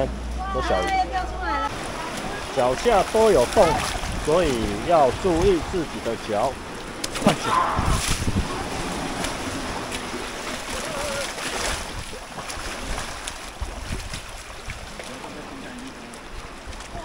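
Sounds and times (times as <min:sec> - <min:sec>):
feet splashing through water: 0:01.7 - 0:17.0
seawater washing over rocks: 0:01.7 - 0:17.0.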